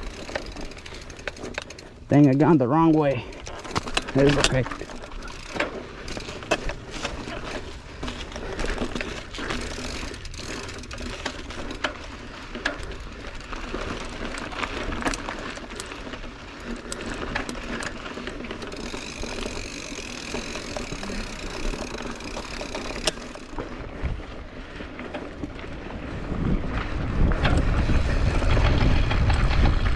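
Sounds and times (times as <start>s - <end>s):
freewheel hub buzzing: 0.0s - 29.9s
mountain bike rattling: 0.0s - 29.9s.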